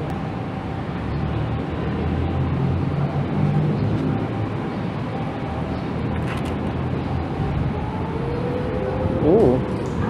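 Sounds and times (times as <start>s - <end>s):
road noise: 0.0s - 10.0s
wind rumble: 0.0s - 10.0s.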